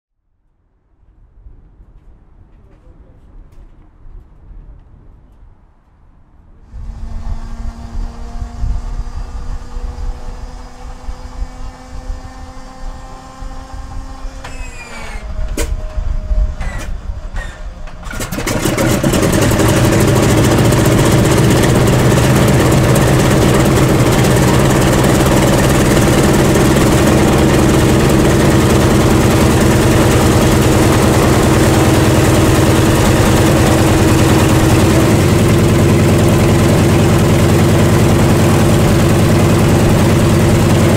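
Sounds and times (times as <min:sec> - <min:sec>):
radial engine running: 0:12.0 - 0:40.9
engine starter whine: 0:13.7 - 0:40.9.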